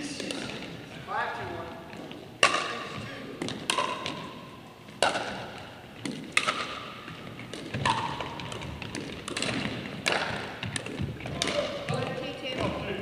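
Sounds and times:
paddles hitting plastic ball: 0.0 - 0.8, 1.9 - 13.0.

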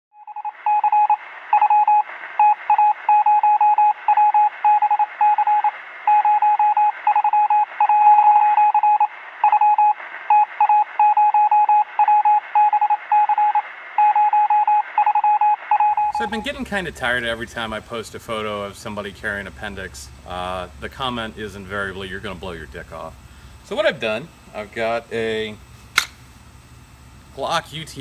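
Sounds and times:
morse code beeps: 0.2 - 16.6
radio static hiss: 0.4 - 11.0, 11.8 - 14.0, 15.6 - 25.8.

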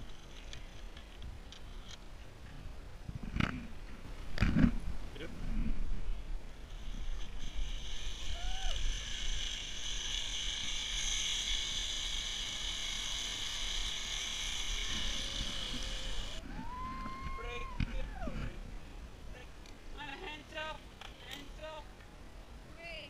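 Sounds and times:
pulley wheels whirring on cable: 0.0 - 2.0, 6.5 - 18.5
wind rumble on microphone: 2.4 - 10.6, 14.7 - 19.4.

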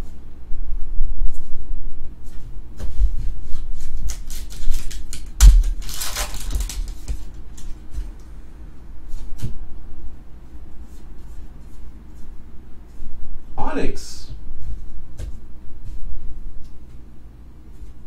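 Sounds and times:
foil pack crinkling open: 4.0 - 7.8
trading cards clicking: 4.1 - 7.7.

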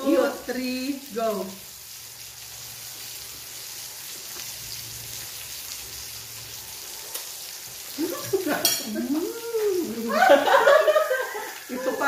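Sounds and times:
food sizzling on grill: 0.0 - 12.0
person humming: 8.9 - 10.2.

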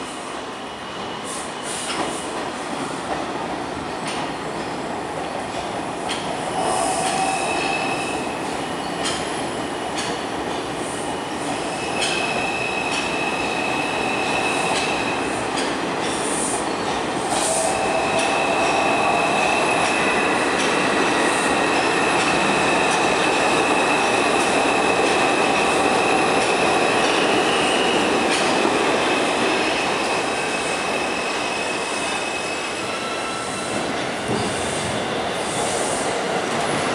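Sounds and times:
train wheels rumbling on rails: 0.0 - 36.9
high wheel squeal: 30.0 - 33.8.

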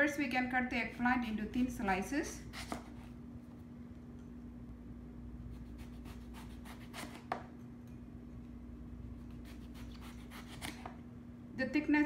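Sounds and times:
steady low hum: 0.0 - 12.0
knife slicing eggplant: 2.4 - 3.2, 5.5 - 7.5, 9.2 - 11.0.

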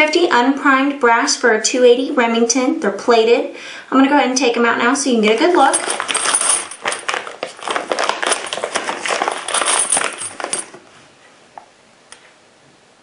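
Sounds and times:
brass cases clinking: 5.4 - 10.8
plastic bag being handled: 5.5 - 10.8.

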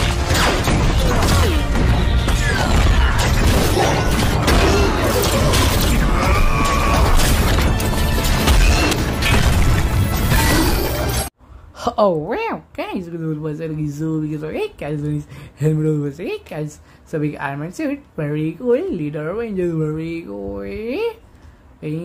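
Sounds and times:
action film music: 0.0 - 11.3.

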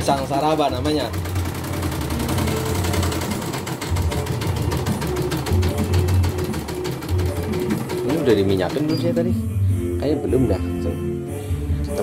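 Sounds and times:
embroidery machine needle stitching: 0.0 - 9.2.

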